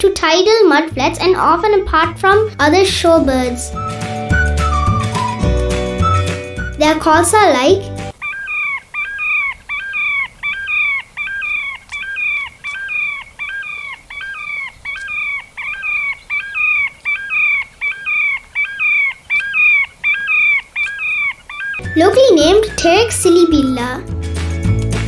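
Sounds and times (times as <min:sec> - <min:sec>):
sandpiper whistled calls: 0:03.7 - 0:07.2, 0:08.1 - 0:24.0.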